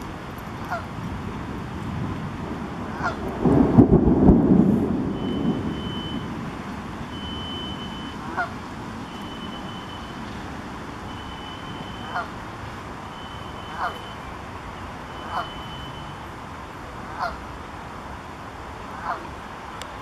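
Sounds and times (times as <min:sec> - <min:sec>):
thunder rumble: 0:00.0 - 0:17.2
wind and waves: 0:00.0 - 0:20.0
geese honking: 0:00.6 - 0:00.9, 0:02.9 - 0:03.2, 0:08.2 - 0:08.6, 0:11.4 - 0:12.4, 0:13.1 - 0:14.2, 0:14.8 - 0:15.9, 0:17.0 - 0:17.5, 0:18.9 - 0:19.3
faint high beep: 0:05.2 - 0:06.3, 0:07.1 - 0:08.2, 0:09.1 - 0:10.3, 0:11.1 - 0:12.2, 0:13.0 - 0:16.3.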